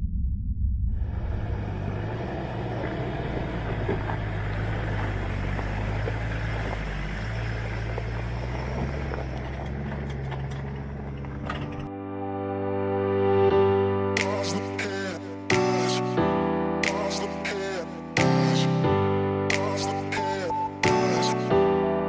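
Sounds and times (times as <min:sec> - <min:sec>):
truck engine running at low revs: 0:00.1 - 0:11.9
stones crackling under tyres: 0:01.8 - 0:11.9.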